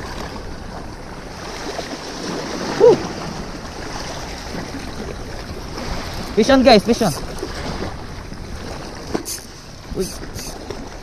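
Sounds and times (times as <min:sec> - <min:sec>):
sea waves: 0:00.0 - 0:11.0
wind: 0:00.0 - 0:11.0
person exclaiming: 0:02.7 - 0:03.0.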